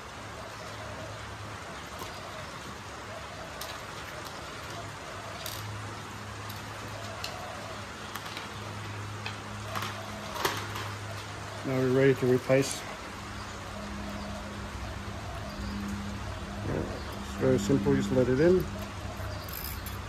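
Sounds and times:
low hum: 0:12.8 - 0:20.0.

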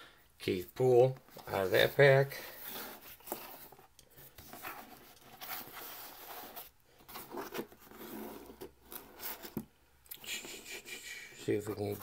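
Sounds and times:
cardboard cards rustling and scraping: 0:01.3 - 0:09.7, 0:11.6 - 0:12.0.

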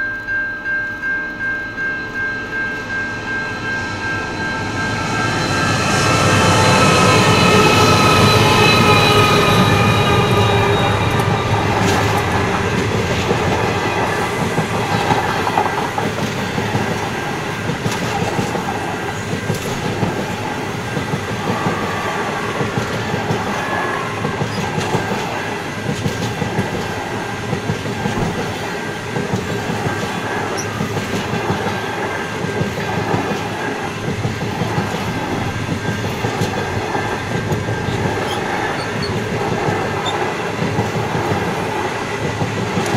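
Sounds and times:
locomotive whine: 0:00.0 - 0:42.9
train wheels rumbling on rail: 0:02.7 - 0:42.9.

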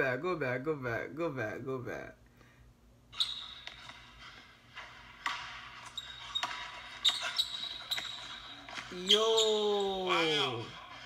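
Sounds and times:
sneakers squeaking on floor: 0:03.1 - 0:10.5
basketball bouncing on wood floor: 0:04.8 - 0:10.0.

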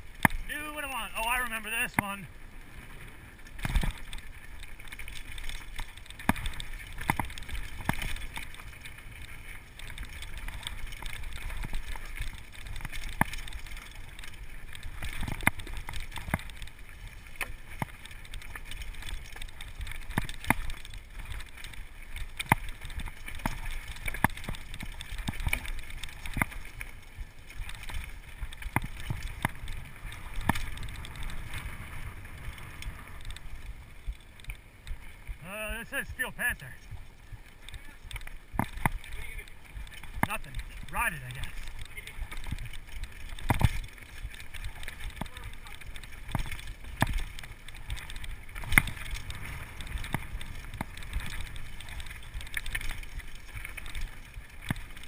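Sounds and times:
mountain bike rattling: 0:00.0 - 0:55.0
tyres rumbling on trail: 0:00.0 - 0:55.0.

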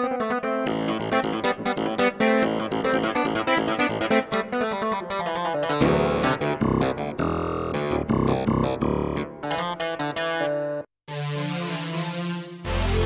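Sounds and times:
synthesizer clavinet notes: 0:05.4 - 0:12.0.

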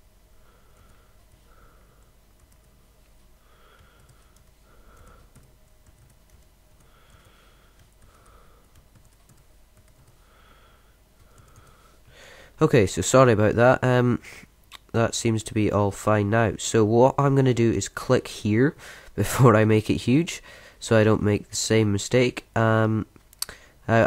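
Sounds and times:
soft breaths: 0:00.3 - 0:05.6, 0:06.7 - 0:09.3, 0:10.0 - 0:12.6, 0:18.8 - 0:19.2, 0:20.4 - 0:20.8
typing on computer keyboard: 0:04.0 - 0:10.2, 0:11.2 - 0:11.8.

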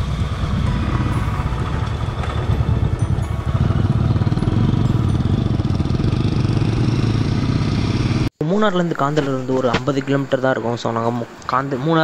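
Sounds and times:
motorcycle engine running: 0:00.0 - 0:08.3.

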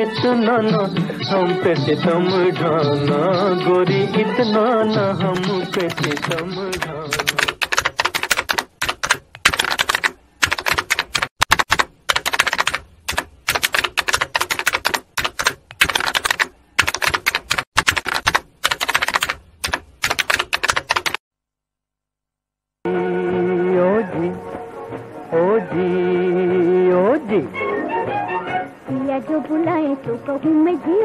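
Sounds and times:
keyboard typing: 0:05.3 - 0:21.2.

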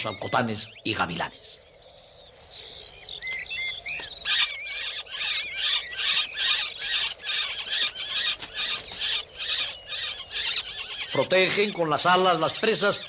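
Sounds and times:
nestlings whistling and crying: 0:00.0 - 0:13.0
wing flapping: 0:05.6 - 0:10.9.

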